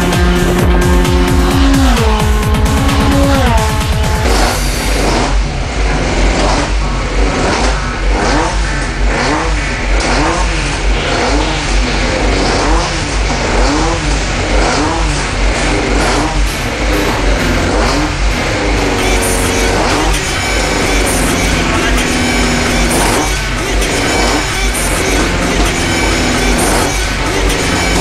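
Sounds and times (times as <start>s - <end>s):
truck engine revving: 0.0s - 28.0s.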